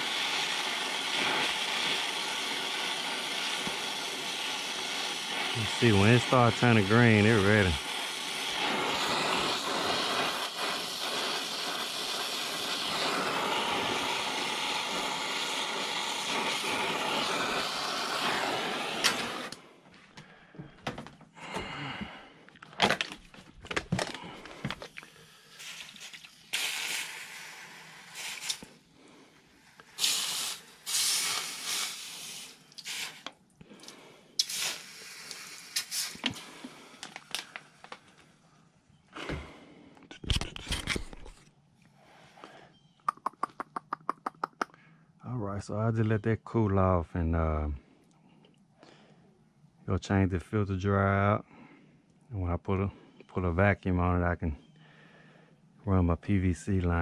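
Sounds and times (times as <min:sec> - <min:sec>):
torch flame hissing: 0:00.0 - 0:19.8, 0:25.1 - 0:38.0.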